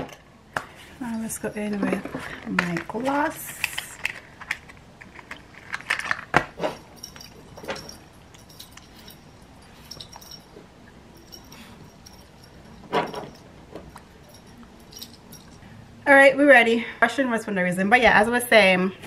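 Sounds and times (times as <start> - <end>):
objects clicking and knocking: 0.0 - 9.2.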